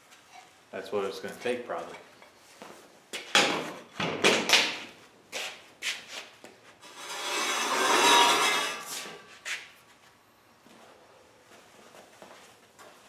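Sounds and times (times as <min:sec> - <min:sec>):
metal scraping: 0:06.8 - 0:09.4.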